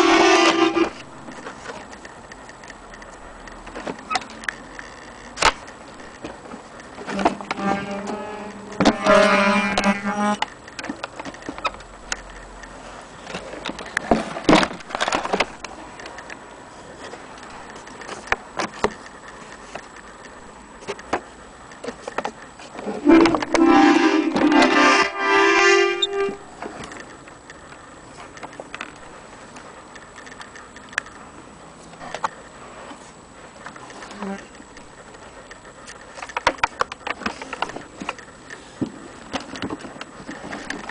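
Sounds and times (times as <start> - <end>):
accordion clicks and knocks: 23.1 - 25.2
accordion chord: 23.1 - 26.4.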